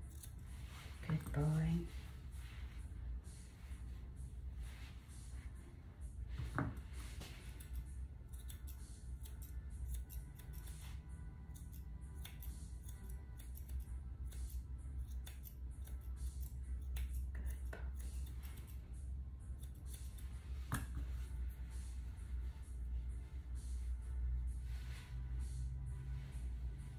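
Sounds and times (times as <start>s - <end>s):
low hum: 0.0s - 26.9s
grooming shears snipping: 7.2s - 18.8s.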